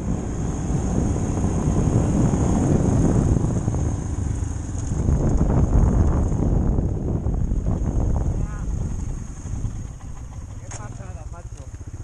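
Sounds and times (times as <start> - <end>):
motorcycle engine running: 0.0 - 12.0
wind rumbling on microphone: 0.0 - 12.0.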